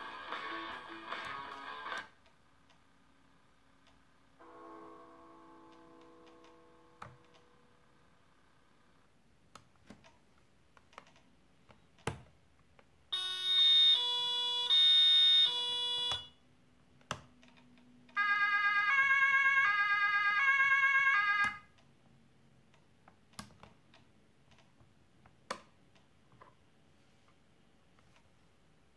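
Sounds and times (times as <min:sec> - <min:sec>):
two-tone emergency horn: 0:13.2 - 0:16.4.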